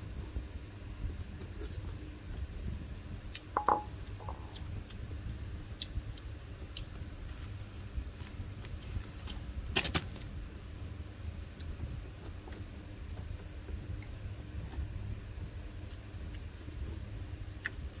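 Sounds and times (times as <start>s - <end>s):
low steady rumble: 0.0s - 18.0s
ceramic bowl clinking: 3.6s - 4.4s.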